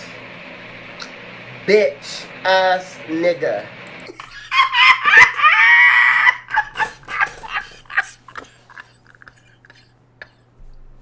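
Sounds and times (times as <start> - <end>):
man shrieking with laughter: 4.2 - 9.0
man laughing in short bursts: 4.2 - 10.6.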